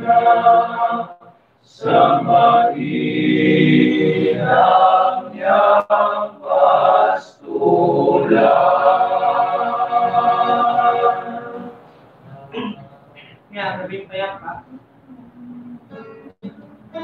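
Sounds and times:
male choir singing a cappella: 0:00.0 - 0:12.7.

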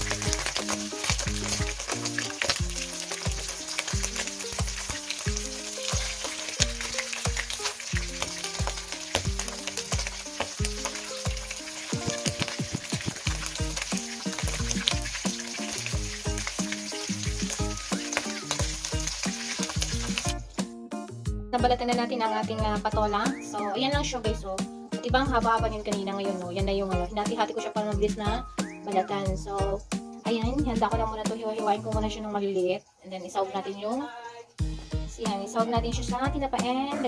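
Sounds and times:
fish sizzling in hot oil: 0:00.0 - 0:20.6
background music with bass beat: 0:18.6 - 0:21.9, 0:34.6 - 0:36.6.

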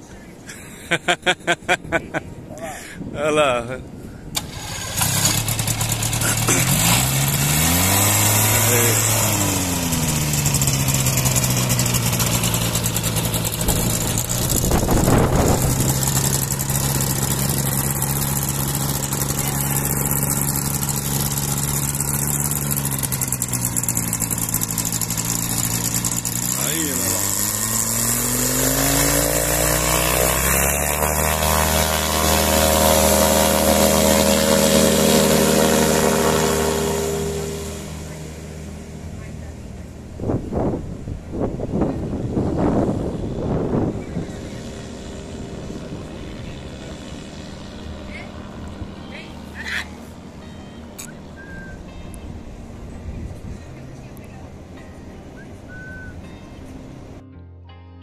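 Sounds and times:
propeller engine idling: 0:03.8 - 0:57.2
wind noise: 0:11.5 - 0:18.1, 0:40.0 - 0:47.3.

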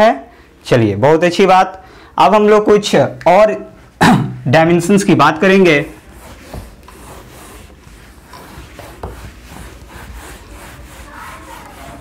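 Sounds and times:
duster rubbing whiteboard: 0:05.4 - 0:12.0.

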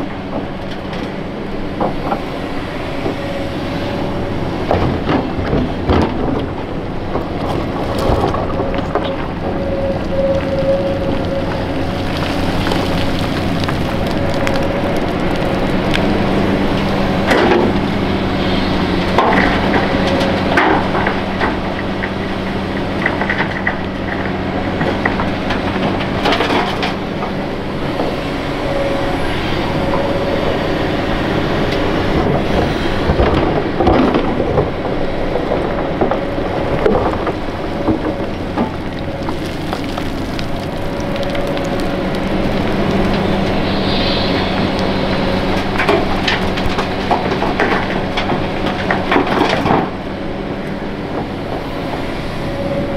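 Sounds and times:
excavator diesel engine running: 0:00.0 - 0:52.9
hydraulic whine: 0:42.4 - 0:47.0.

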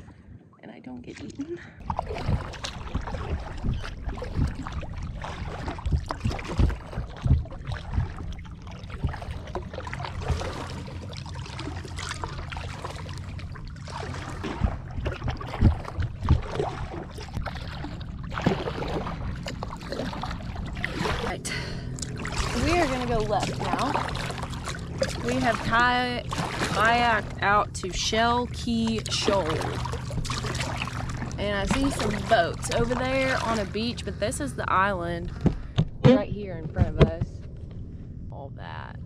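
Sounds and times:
wind on microphone: 0:01.3 - 0:10.6
paddle splashing in water: 0:01.8 - 0:33.9.

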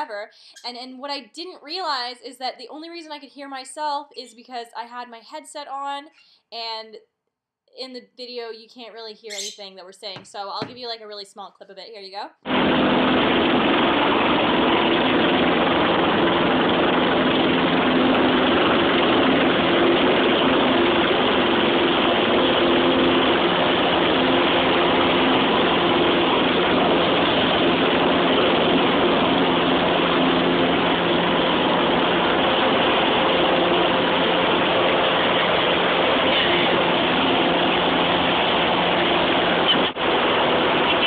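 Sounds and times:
propeller plane engine droning: 0:12.5 - 0:41.0.

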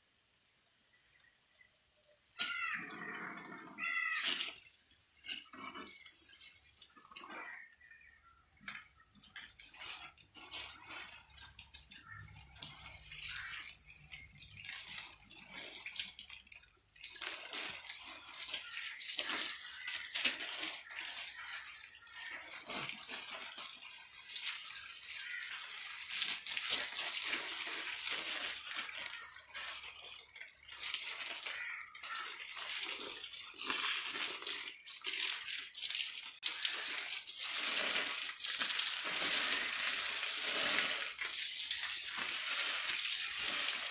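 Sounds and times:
garden hose spraying water: 0:00.0 - 0:02.8, 0:03.8 - 0:43.9.

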